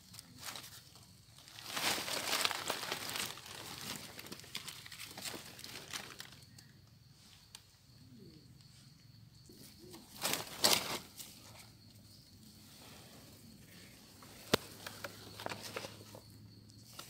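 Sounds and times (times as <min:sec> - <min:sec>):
dry leaf litter crackling: 0:00.0 - 0:06.6, 0:09.9 - 0:11.6
leaves and undergrowth rustling: 0:00.0 - 0:07.8, 0:09.4 - 0:17.0.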